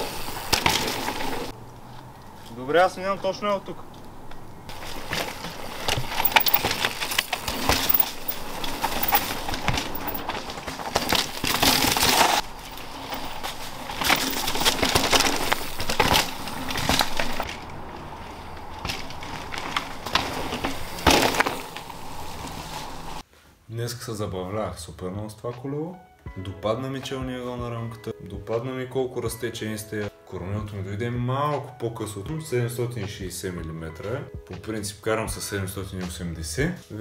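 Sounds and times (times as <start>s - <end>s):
bike clattering on rough ground: 0.0s - 23.2s
tyres crunching over stones: 0.1s - 23.2s.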